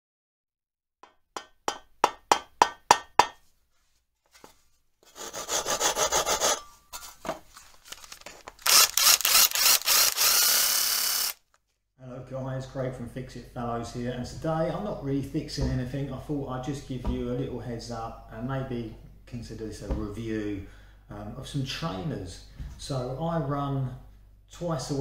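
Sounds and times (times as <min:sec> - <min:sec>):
saw cutting through wood: 0:05.1 - 0:06.6, 0:08.6 - 0:11.4.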